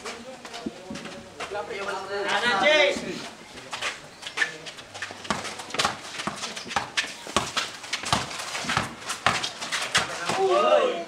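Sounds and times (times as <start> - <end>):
basketball bouncing on concrete: 4.8 - 10.5.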